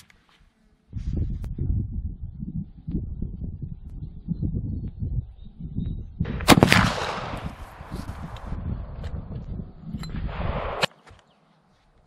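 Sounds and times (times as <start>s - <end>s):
low wind rumble: 0.8s - 10.9s
rifle shot with echo: 6.3s - 7.9s.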